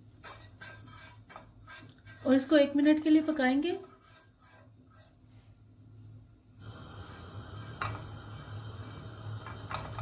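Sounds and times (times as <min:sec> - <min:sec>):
spatula scraping pan: 0:00.0 - 0:05.6, 0:06.6 - 0:10.0
light hiss: 0:06.6 - 0:10.0.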